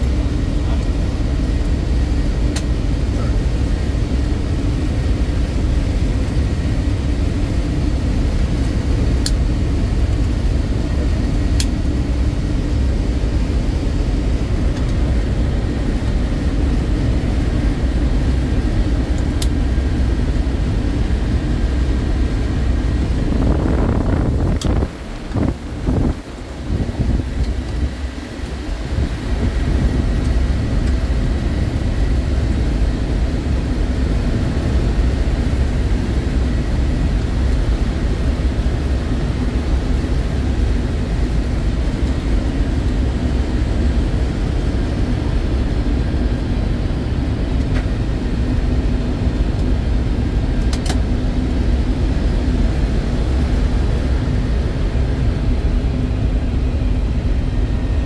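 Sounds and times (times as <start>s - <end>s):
aircraft engine rumble: 0.0s - 58.0s
sharp click: 50.6s - 51.0s.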